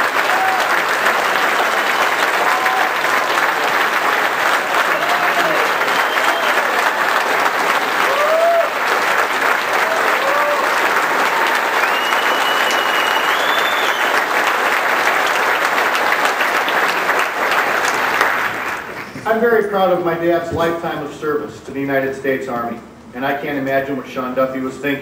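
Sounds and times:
audience applauding: 0.0s - 19.3s
whistle: 5.8s - 6.6s, 11.8s - 14.2s.

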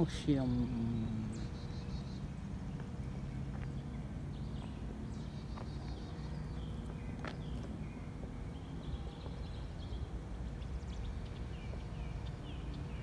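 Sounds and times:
songbird trilling: 0.0s - 13.0s.

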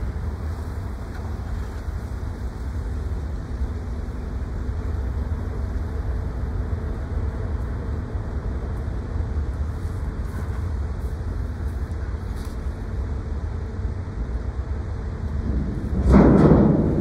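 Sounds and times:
ship machinery humming: 0.0s - 17.0s.

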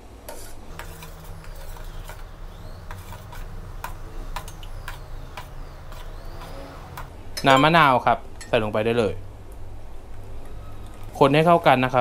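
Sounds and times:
spoon scraping steel bowl: 0.3s - 7.7s.

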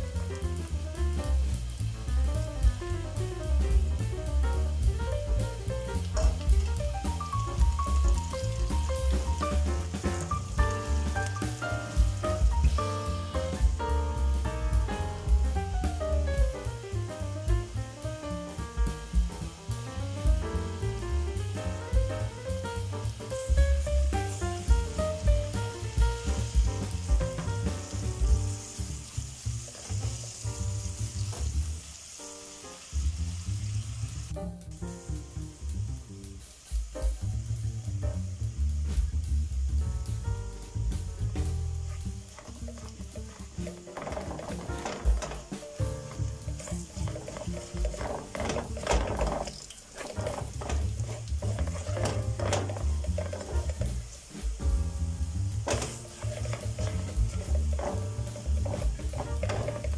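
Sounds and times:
background music with bass beat: 0.0s - 29.0s, 37.9s - 49.4s, 50.1s - 59.9s
vegetables sizzling in hot oil: 0.0s - 59.9s
spatula stirring in pot: 42.3s - 54.6s, 55.6s - 59.9s.

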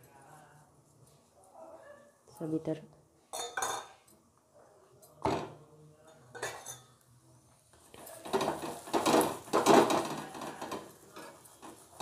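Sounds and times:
metal spoon clinking on griddle: 6.1s - 7.0s
spoon scraping on griddle: 7.9s - 12.0s.

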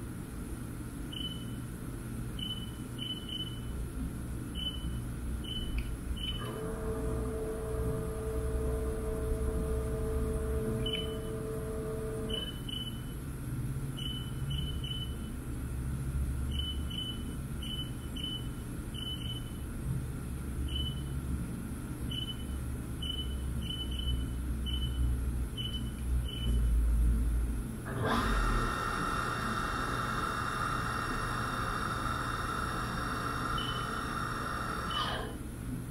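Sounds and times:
machine whine: 4.6s - 13.1s, 27.8s - 35.5s
milling machine hum: 6.0s - 12.8s, 27.8s - 35.6s.

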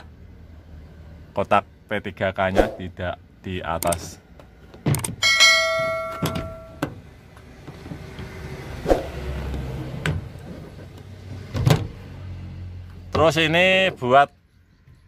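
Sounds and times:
bell chime sound effect: 5.2s - 6.8s.

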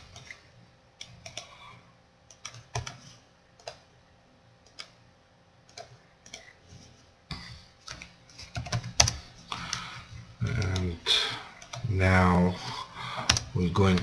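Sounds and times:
computer mouse clicks: 1.0s - 1.6s, 2.3s - 3.8s, 4.6s - 5.0s, 5.7s - 6.6s.

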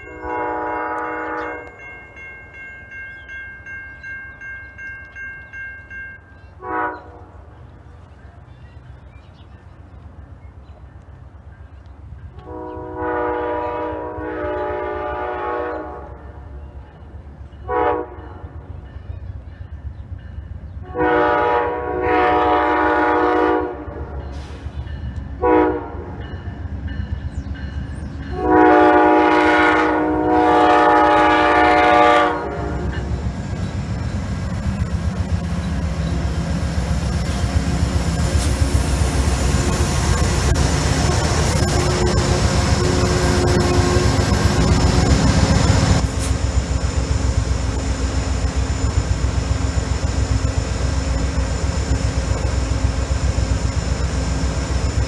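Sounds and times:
locomotive horn blasts: 0.0s - 1.9s, 6.6s - 7.5s, 12.4s - 16.3s, 17.6s - 18.6s, 20.8s - 24.3s, 25.4s - 26.2s, 28.3s - 33.0s, 38.4s - 46.3s
diesel locomotive engine: 0.0s - 55.0s
train wheels on rails: 0.0s - 55.0s.

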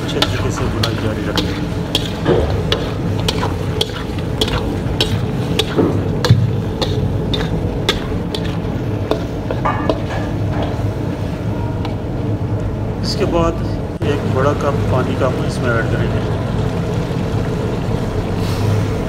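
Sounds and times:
metal spatula scraping a pan: 0.0s - 6.0s, 6.6s - 10.8s
food sizzling in frying: 0.0s - 13.3s.

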